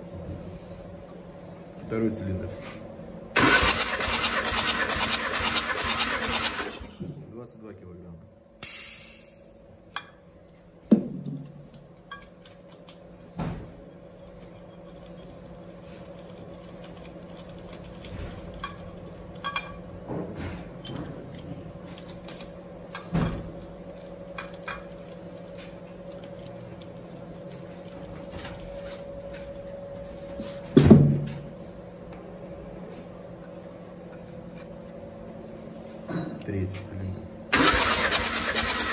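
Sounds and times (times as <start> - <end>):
steady low hum: 0.0 - 4.0, 6.4 - 37.6
metallic clicks and rattles: 14.2 - 19.8.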